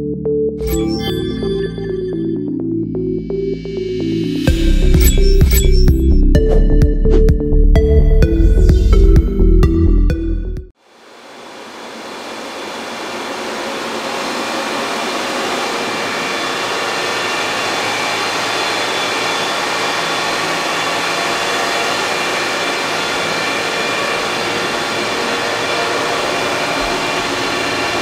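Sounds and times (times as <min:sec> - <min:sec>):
cooling fans whooshing: 0:10.8 - 0:28.0.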